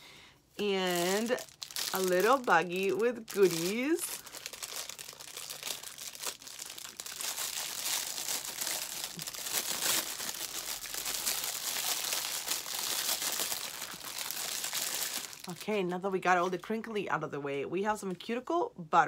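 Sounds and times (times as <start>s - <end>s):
plastic bag crinkling: 0.6s - 16.7s.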